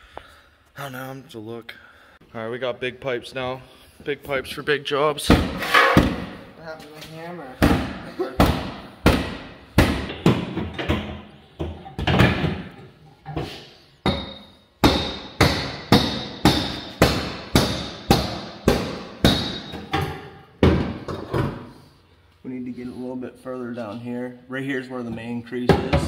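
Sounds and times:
hammer on sheet metal: 14.0 - 21.0.

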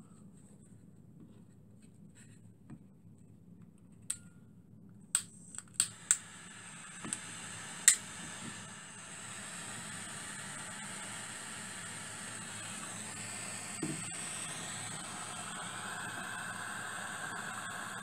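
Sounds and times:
torch igniter clicking: 5.2 - 17.8
torch flame hissing: 5.8 - 18.0.

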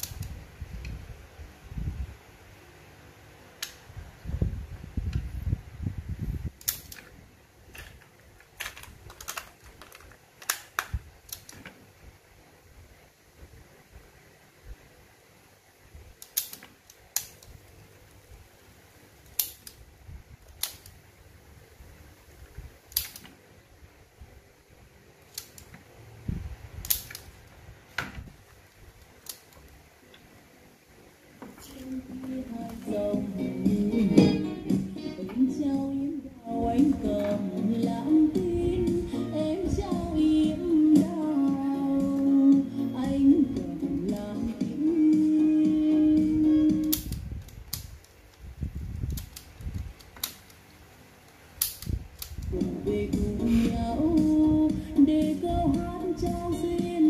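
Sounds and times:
cassette clicking into deck: 7.8 - 11.8.

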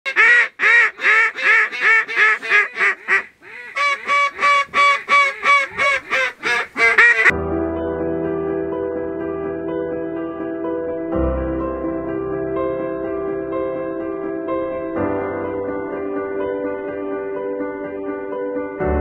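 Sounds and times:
duck quacking rapidly: 0.1 - 7.3
background music: 7.0 - 19.0.

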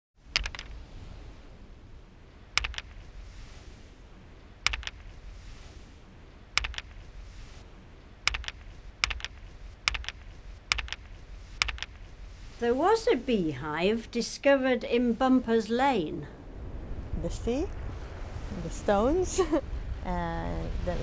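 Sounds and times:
faint steady hiss: 0.2 - 21.0
sharp double clicks: 0.3 - 0.8, 2.6 - 3.1, 4.6 - 5.2, 6.6 - 7.0, 8.2 - 12.1.

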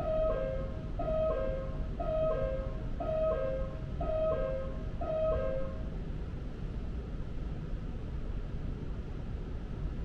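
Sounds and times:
two-note door warning chime: 0.0 - 5.9
low rumble of train: 0.0 - 10.0.

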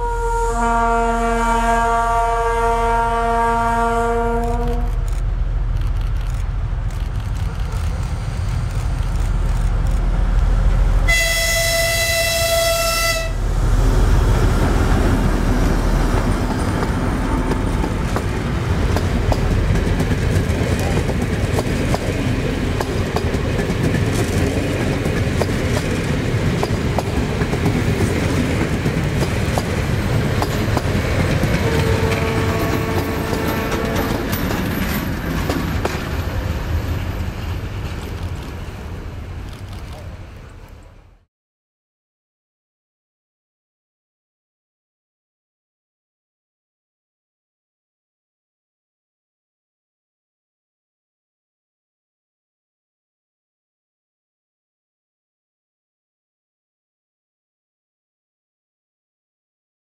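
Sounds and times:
locomotive horn: 0.0 - 5.1, 11.1 - 13.5, 31.5 - 34.4
train wheels clattering on rail joints: 16.1 - 38.6.

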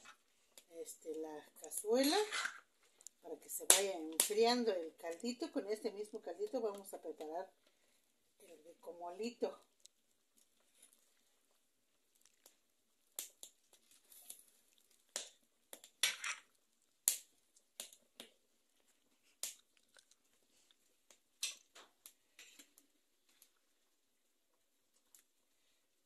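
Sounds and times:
utensil scraping pot: 1.7 - 2.7.

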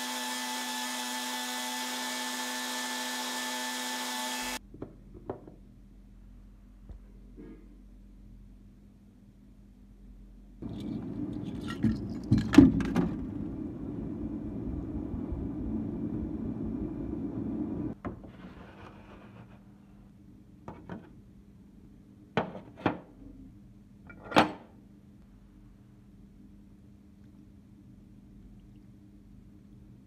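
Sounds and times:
steady hum and noise: 5.9 - 18.0.

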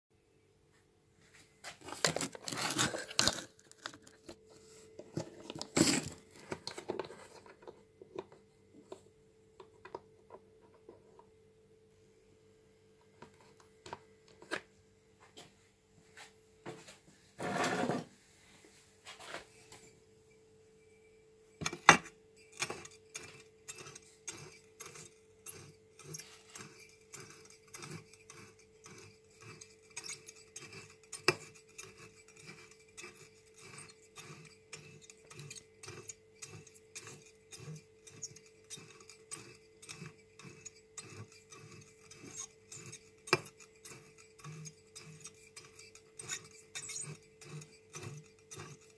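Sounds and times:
faint steady hum: 0.2 - 48.9.

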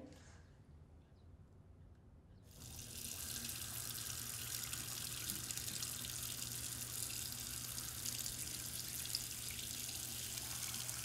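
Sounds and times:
water running: 2.5 - 11.0.

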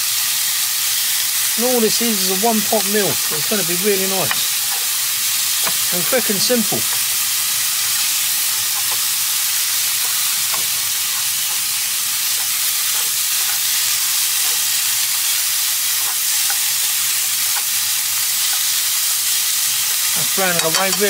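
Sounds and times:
chicken sizzling in a pan: 0.0 - 21.0
utensil tapping a pan: 5.6 - 5.9, 20.6 - 21.0.

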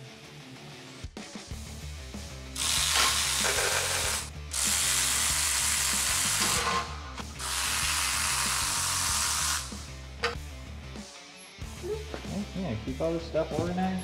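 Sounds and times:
cordless electric ratchets running: 2.6 - 10.0.

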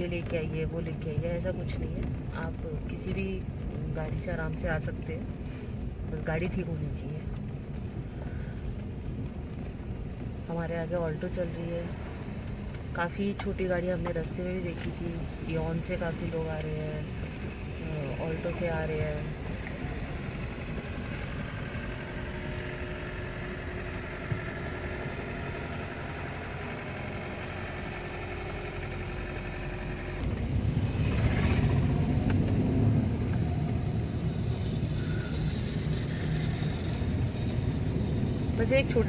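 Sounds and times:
car engine and tyre noise: 0.0 - 39.0
deep rumble: 0.0 - 39.0.

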